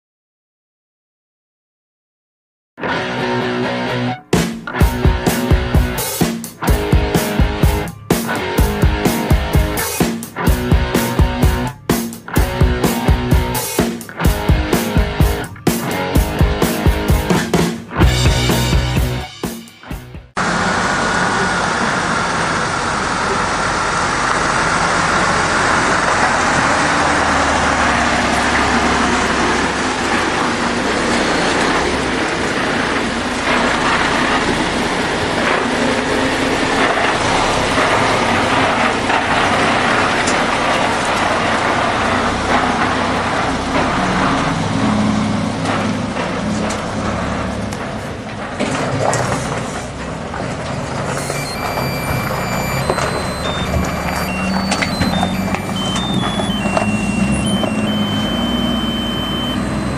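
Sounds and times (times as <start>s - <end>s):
toy truck motor running: 51.1s - 59.9s.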